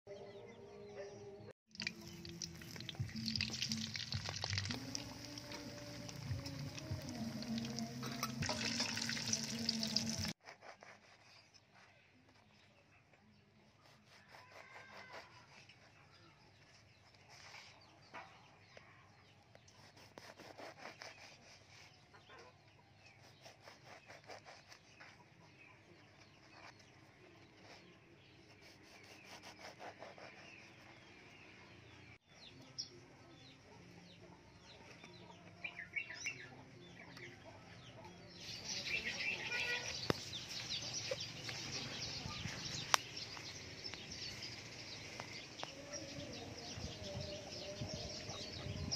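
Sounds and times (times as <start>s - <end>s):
knife sawing through bread: 10.4s - 11.5s, 13.8s - 15.7s, 19.8s - 21.9s, 23.2s - 25.2s, 28.5s - 30.8s.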